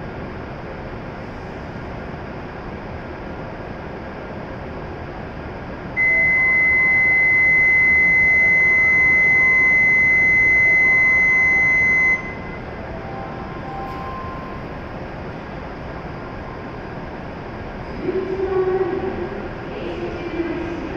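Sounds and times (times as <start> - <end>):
stopped train humming: 0.0 - 20.9
door-closing warning beep: 6.0 - 14.6.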